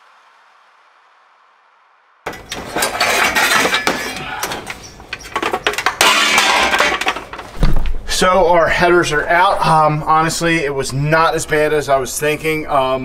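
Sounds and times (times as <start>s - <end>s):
rough noise: 0.0s - 13.0s
metal tools clinking: 2.3s - 7.6s.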